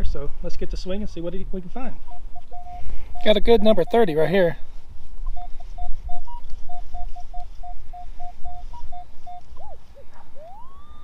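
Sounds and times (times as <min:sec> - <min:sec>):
metal detector short beeps: 0:02.1 - 0:04.6, 0:05.3 - 0:09.8
metal detector rising tone: 0:10.4 - 0:11.0.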